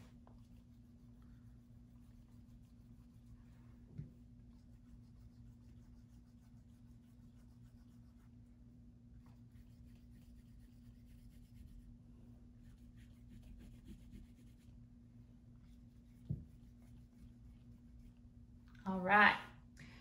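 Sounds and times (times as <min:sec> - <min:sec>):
low steady hum: 0:00.0 - 0:20.0
marker scratching on paper: 0:12.6 - 0:14.7
soft knock: 0:16.2 - 0:16.6.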